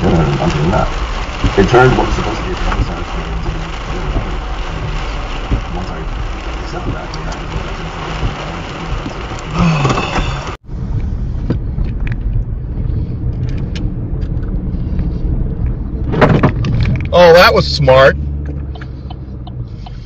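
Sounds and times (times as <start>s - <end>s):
car engine and road noise: 0.0s - 20.0s
rain beating on a car: 0.0s - 20.0s
light ticks: 18.4s - 20.0s.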